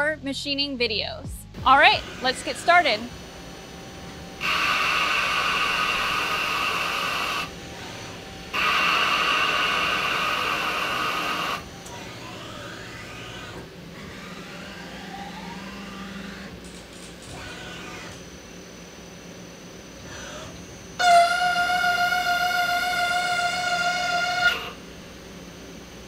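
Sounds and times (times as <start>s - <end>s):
machine hum with gliding tones: 1.4s - 26.0s
lathe tool cutting metal: 1.8s - 18.4s.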